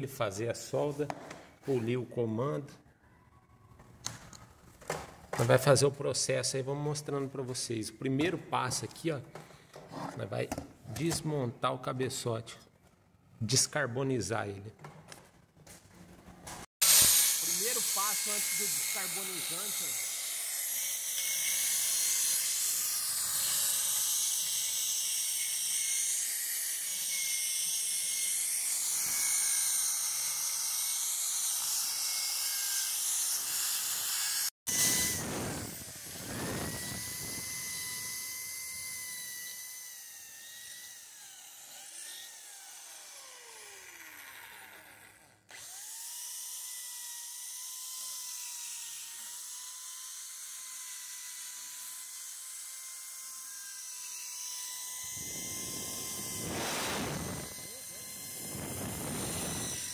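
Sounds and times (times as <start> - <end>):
rotary grinder whine: 16.8 - 59.9.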